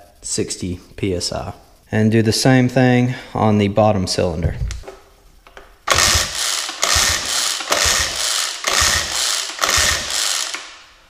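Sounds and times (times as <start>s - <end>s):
outboard engine cranking: 5.9s - 10.2s
pull-starter rope whirring: 5.9s - 10.8s.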